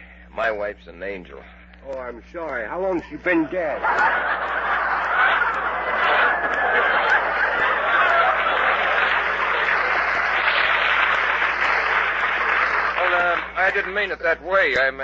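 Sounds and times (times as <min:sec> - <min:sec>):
studio audience laughing: 0:03.2 - 0:14.4.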